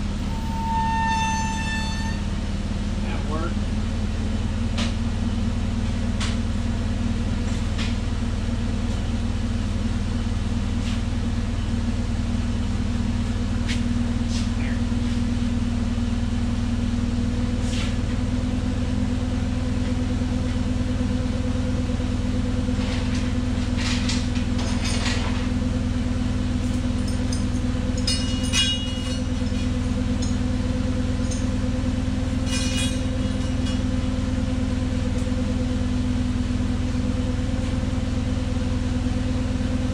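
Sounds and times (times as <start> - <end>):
forklift engine idling: 0.0 - 39.9
chain and tools clinking: 23.8 - 25.4, 26.6 - 30.4, 31.2 - 31.6, 32.4 - 34.0.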